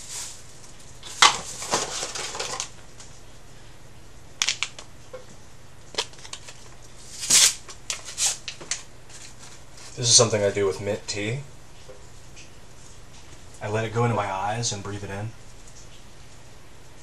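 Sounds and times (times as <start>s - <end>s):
rustling: 0.0s - 3.2s.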